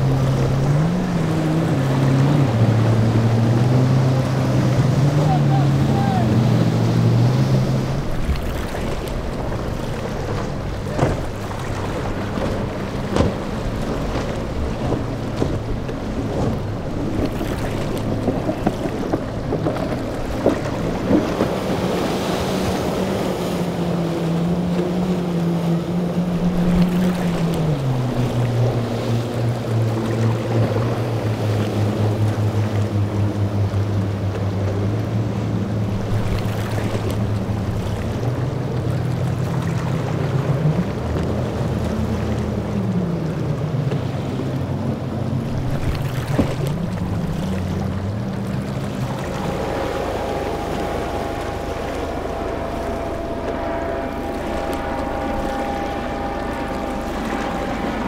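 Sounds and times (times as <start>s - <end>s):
breaking waves: 0.0s - 58.0s
outboard motor drone: 0.0s - 58.0s
wind on microphone: 45.4s - 58.0s.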